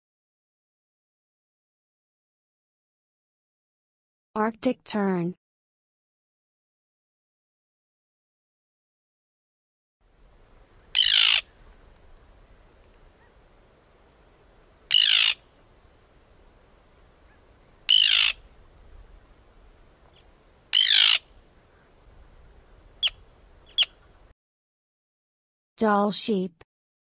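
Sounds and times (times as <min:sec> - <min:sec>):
terns calling harshly: 0:10.7 - 0:11.8, 0:14.8 - 0:15.6, 0:17.2 - 0:18.6, 0:20.0 - 0:24.3.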